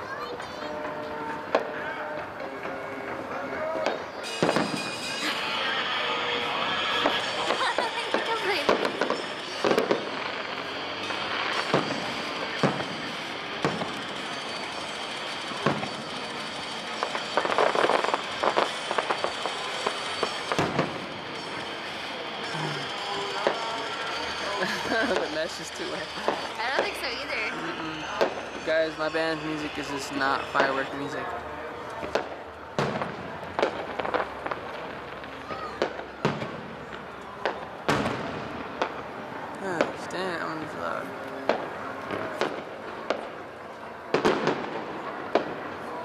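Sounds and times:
fireworks crackling: 0.0 - 46.0
firework booms: 3.8 - 5.1, 6.9 - 22.1, 32.0 - 39.1, 41.5 - 43.4, 44.1 - 46.0
firework pops: 11.5 - 13.0, 32.0 - 39.0.

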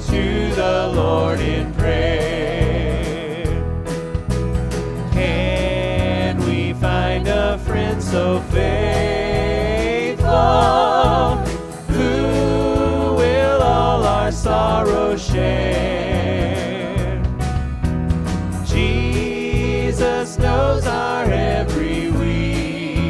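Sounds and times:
voices singing a hymn: 0.0 - 3.6, 5.0 - 17.3, 18.6 - 23.0
acoustic and electric guitars: 1.0 - 9.3, 15.8 - 23.0.

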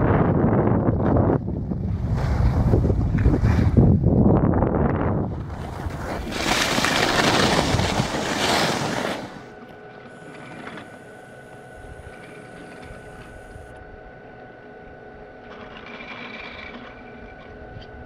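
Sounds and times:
wind on microphone: 0.0 - 8.2
mechanical hum: 0.0 - 18.0
skis sliding over snow: 5.3 - 9.5.

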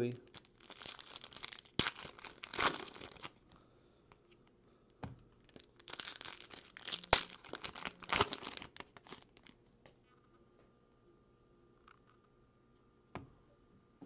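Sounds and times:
foil wrapper tearing and crinkling: 0.2 - 3.4, 5.4 - 9.5
wrapper snapping: 0.2 - 3.5, 5.4 - 9.6.

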